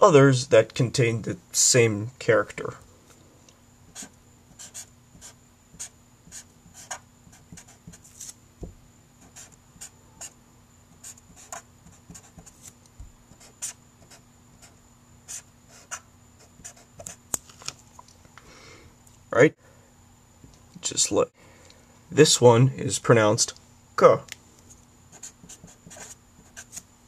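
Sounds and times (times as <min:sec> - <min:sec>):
marker scratching on paper: 0:03.9 - 0:08.3, 0:09.2 - 0:10.4, 0:11.0 - 0:17.2, 0:25.1 - 0:26.9.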